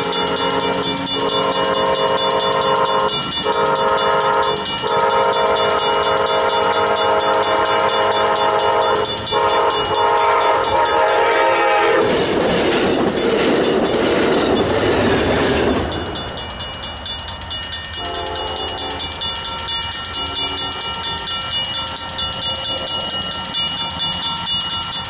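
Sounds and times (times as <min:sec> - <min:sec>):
distant train horn: 0:00.0 - 0:12.4, 0:18.0 - 0:19.2
crossing warning bell ringing: 0:00.0 - 0:25.0
train rushing past: 0:00.0 - 0:25.0.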